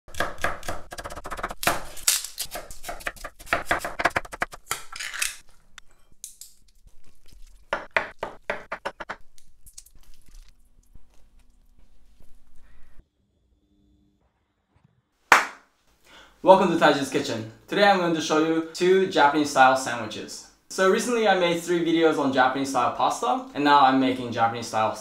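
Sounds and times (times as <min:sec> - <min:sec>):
knife chopping on wooden board: 0:00.1 - 0:04.8, 0:07.7 - 0:09.2.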